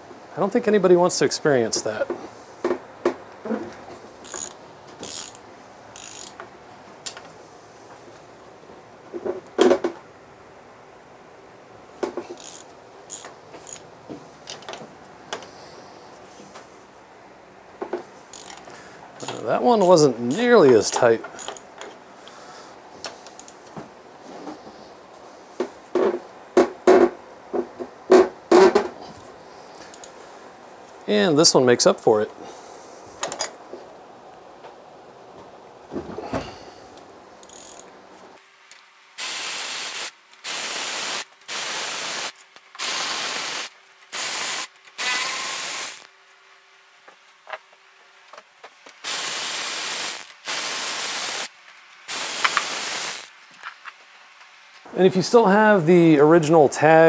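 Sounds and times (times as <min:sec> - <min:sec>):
socket ratchet clicking: 0:04.2 - 0:05.4, 0:06.0 - 0:06.4, 0:12.4 - 0:13.9, 0:18.3 - 0:18.6, 0:21.4 - 0:21.7, 0:37.4 - 0:37.9.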